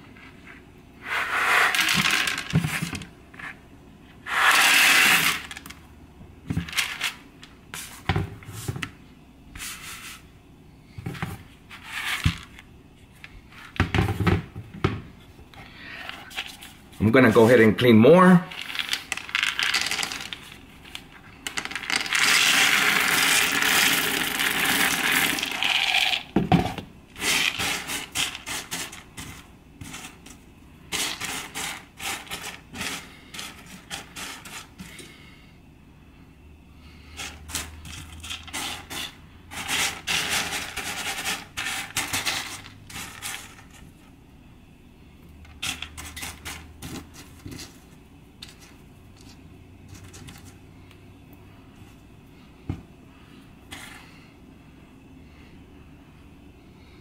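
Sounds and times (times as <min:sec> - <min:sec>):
beans clicking and scraping: 0:00.0 - 0:03.6, 0:04.2 - 0:05.8, 0:06.5 - 0:08.0, 0:18.5 - 0:35.4, 0:36.9 - 0:44.1, 0:45.4 - 0:52.1, 0:53.7 - 0:54.2
dry beans pouring rattle: 0:01.4 - 0:02.6, 0:04.3 - 0:05.8, 0:18.5 - 0:26.3, 0:37.2 - 0:43.8.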